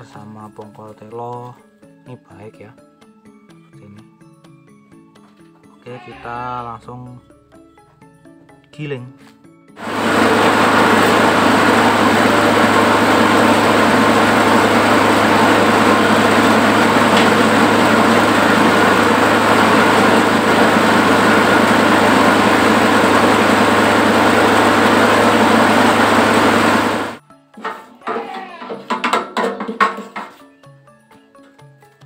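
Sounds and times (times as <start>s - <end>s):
machine grinding corn cobs: 9.8s - 27.2s
small petrol engine running: 9.8s - 27.2s.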